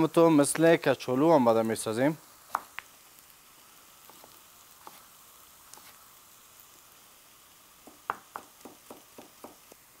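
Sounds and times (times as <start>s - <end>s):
potatoes sizzling in oil: 0.0s - 10.0s
knife tapping on cutting board: 7.8s - 9.6s.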